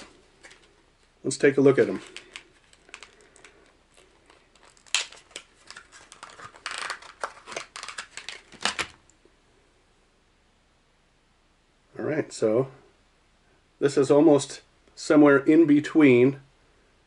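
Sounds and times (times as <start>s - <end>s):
plastic package crackling: 0.0s - 9.1s.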